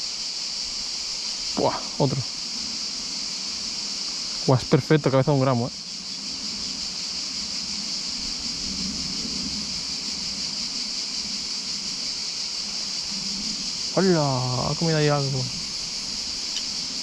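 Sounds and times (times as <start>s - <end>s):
wind on microphone: 5.7s - 17.0s.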